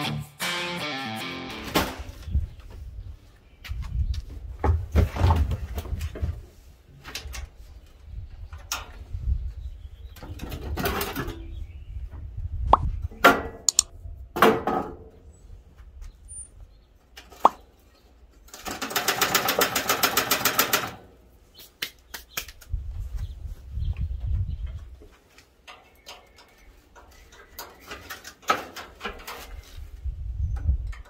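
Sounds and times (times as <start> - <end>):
wind rumbling on microphone: 2.1 - 6.6, 7.2 - 14.4, 22.6 - 25.0, 29.5 - 31.0.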